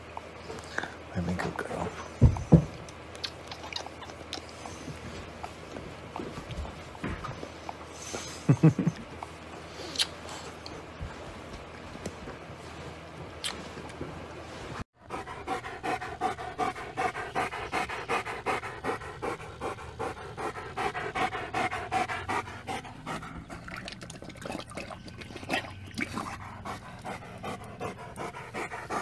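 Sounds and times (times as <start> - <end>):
dog panting: 15.0 - 23.8, 25.4 - 29.0.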